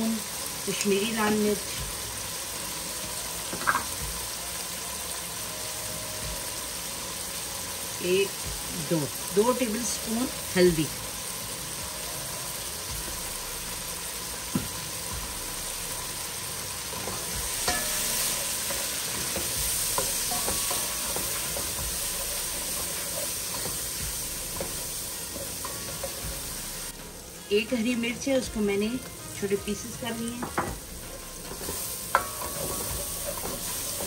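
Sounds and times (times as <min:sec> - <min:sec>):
food sizzling in oil: 0:00.0 - 0:34.0
spoon tapping and scraping pan: 0:17.0 - 0:26.3, 0:31.4 - 0:34.0.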